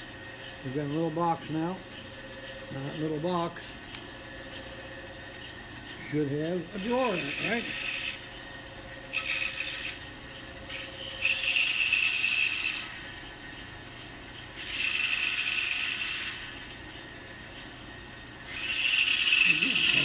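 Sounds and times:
scroll saw cutting wood: 6.4 - 8.3, 9.1 - 10.1, 10.7 - 13.0, 14.6 - 16.6, 18.4 - 20.0.

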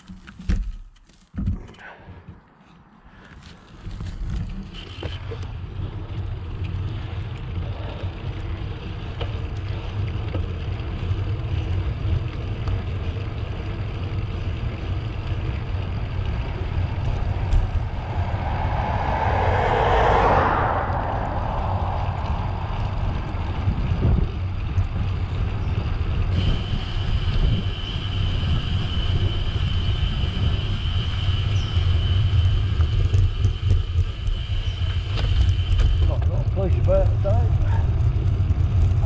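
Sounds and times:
wind rumble on microphone: 3.8 - 39.0
motor vehicle passing: 13.1 - 28.4.

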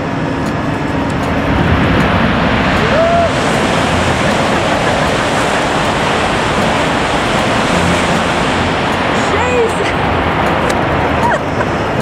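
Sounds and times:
high-speed train passing: 0.0 - 12.0.

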